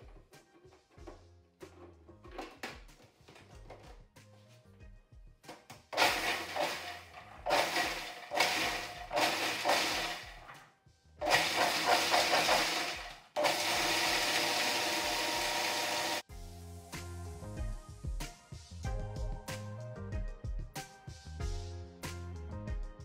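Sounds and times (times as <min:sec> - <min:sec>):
food processor motor chopping: 0:06.0 - 0:10.6, 0:11.2 - 0:16.2.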